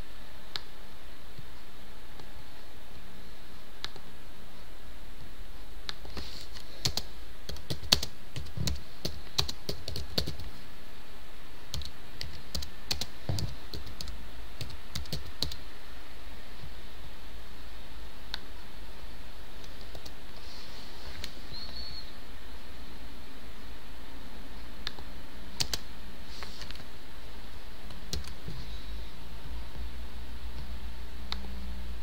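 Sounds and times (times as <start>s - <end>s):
background hiss: 0.0s - 32.0s
keyboard typing: 5.9s - 10.5s, 11.7s - 15.6s, 19.6s - 20.2s, 25.6s - 25.9s, 27.9s - 28.4s.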